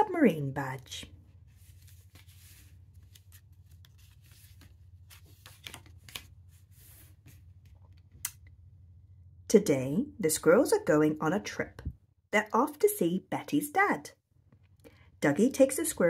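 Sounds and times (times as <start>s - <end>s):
book pages rustling: 1.1s - 8.2s.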